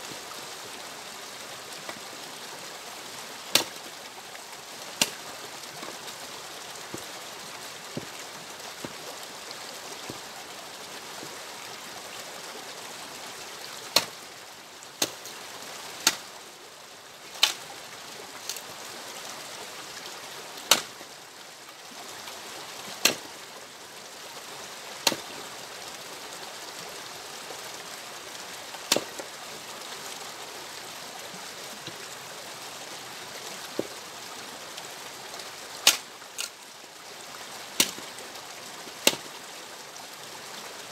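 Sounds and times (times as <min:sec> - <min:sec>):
axe splitting logs: 0:03.5 - 0:03.8, 0:05.0 - 0:05.2, 0:13.9 - 0:14.2, 0:15.0 - 0:15.2, 0:16.0 - 0:16.2, 0:17.4 - 0:17.6, 0:20.7 - 0:20.9, 0:23.0 - 0:23.3, 0:25.0 - 0:25.3, 0:28.9 - 0:29.2, 0:35.8 - 0:36.5, 0:37.8 - 0:38.1, 0:39.0 - 0:39.3.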